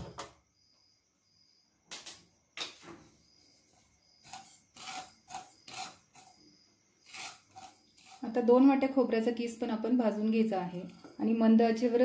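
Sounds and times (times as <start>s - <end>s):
wooden spatula scraping pan: 4.2s - 6.4s, 7.0s - 8.5s.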